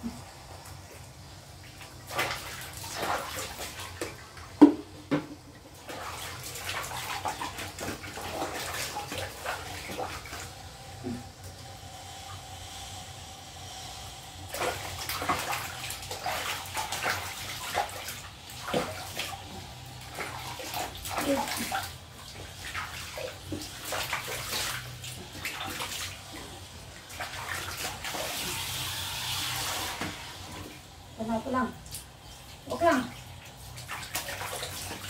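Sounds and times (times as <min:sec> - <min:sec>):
water splashing in a basin: 0:00.9 - 0:11.4, 0:14.4 - 0:35.0
shower head spraying water: 0:08.5 - 0:33.0.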